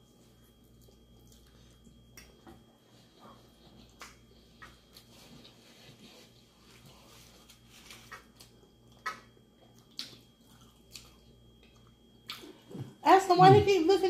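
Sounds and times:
sharp mouth smacks: 4.0 - 4.7.

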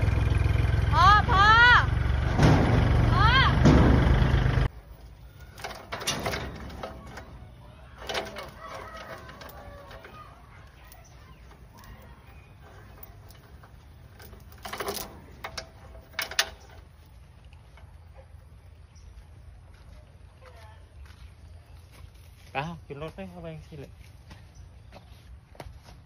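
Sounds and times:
low steady rumble: 0.0 - 19.8
metal clanks and knocks: 2.1 - 4.7, 5.3 - 17.1
chickens clucking: 6.3 - 13.9.

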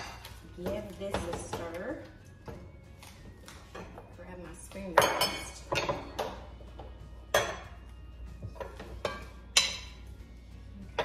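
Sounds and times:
spoon clinking against a pot: 7.3 - 7.8, 8.6 - 10.0.

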